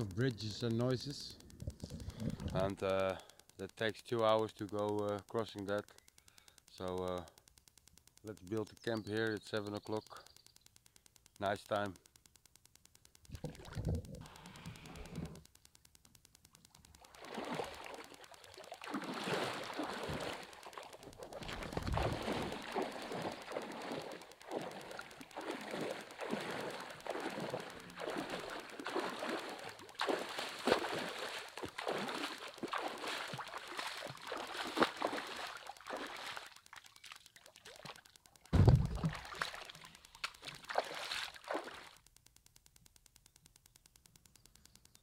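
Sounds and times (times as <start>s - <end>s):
water splashing from wading: 16.9s - 42.0s
loud low thump: 38.6s - 39.1s.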